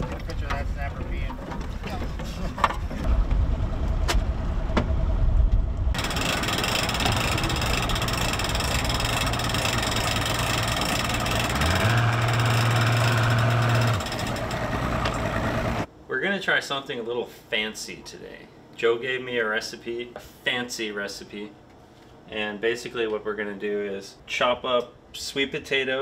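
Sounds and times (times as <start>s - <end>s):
outboard motor revving: 6.0s - 15.9s.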